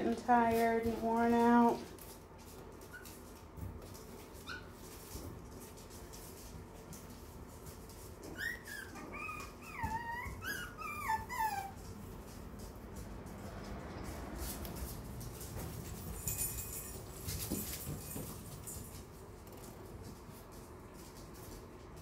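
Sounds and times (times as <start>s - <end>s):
puppy whimpering: 8.2s - 12.0s.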